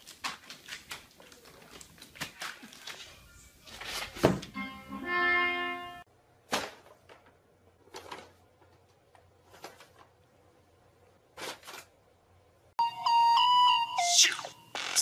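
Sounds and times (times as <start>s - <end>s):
pitched voice-like note: 13.7s - 15.0s.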